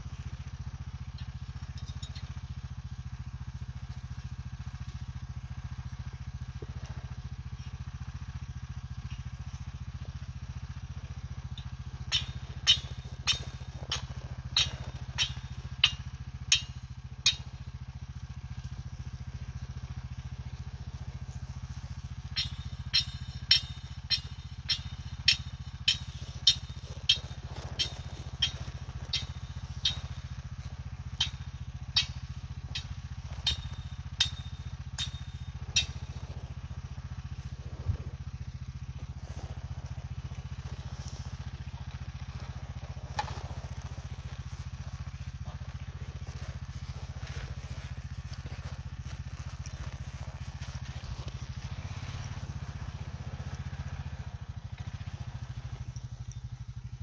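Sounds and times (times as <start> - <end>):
atv engine idling: 0.0 - 57.0
sharp irregular clicks: 11.6 - 17.5.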